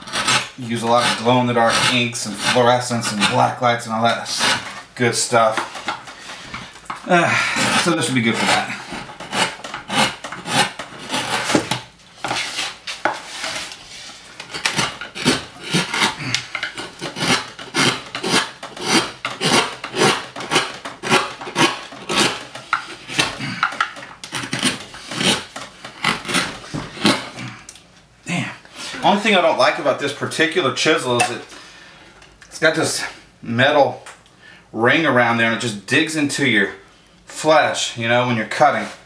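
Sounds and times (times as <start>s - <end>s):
hand gouge scraping wood: 0.0s - 27.6s.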